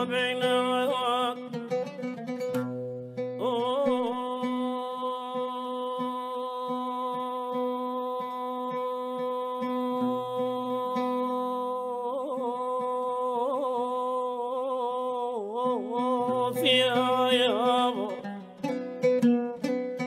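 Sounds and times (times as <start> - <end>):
oud plucking: 0.0 - 7.7, 15.8 - 20.0
man singing a long note: 3.4 - 18.2.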